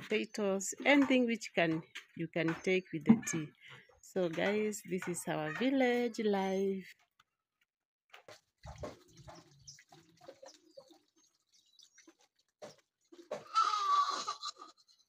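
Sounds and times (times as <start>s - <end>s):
water splashing into bucket: 8.1s - 13.6s.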